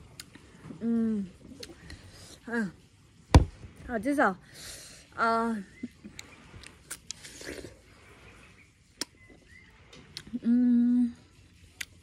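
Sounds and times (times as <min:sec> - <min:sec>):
chewing with wet mouth clicks: 0:00.0 - 0:00.5, 0:05.8 - 0:07.8, 0:08.9 - 0:10.4, 0:11.7 - 0:12.0
biting watermelon: 0:06.1 - 0:07.9, 0:08.9 - 0:10.5
person humming: 0:10.3 - 0:11.3.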